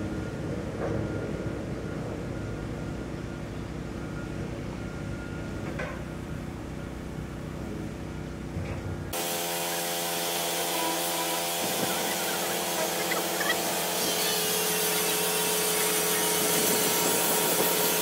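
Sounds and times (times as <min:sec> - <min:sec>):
low machine hum: 0:00.0 - 0:18.0
hissing power tool whine: 0:09.2 - 0:18.0.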